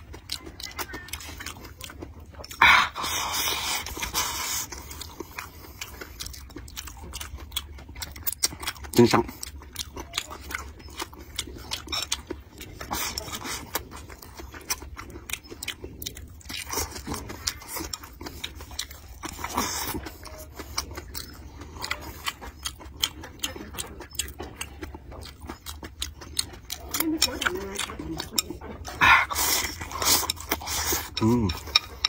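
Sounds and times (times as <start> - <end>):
man chewing food: 0.0 - 32.0.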